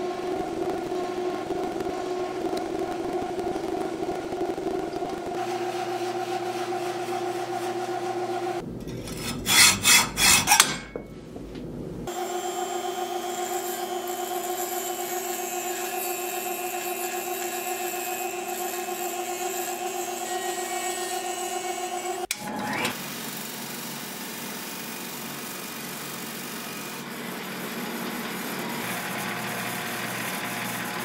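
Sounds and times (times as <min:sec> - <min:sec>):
metal lathe humming: 0:00.0 - 0:11.1, 0:12.1 - 0:31.0
sandpaper scratching on steel: 0:09.1 - 0:10.6
rotary tool whining: 0:12.1 - 0:31.0.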